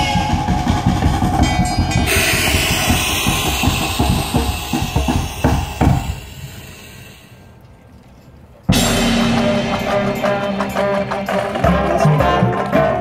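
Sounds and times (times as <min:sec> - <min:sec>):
marching band drum hits: 0:00.0 - 0:06.5, 0:08.7 - 0:12.3
band brass chords: 0:08.7 - 0:13.0.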